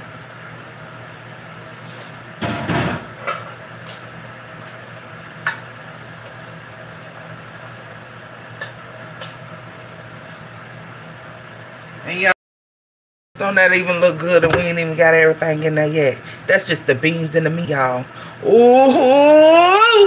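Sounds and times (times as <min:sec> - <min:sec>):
steady low hum: 0:13.4 - 0:19.8.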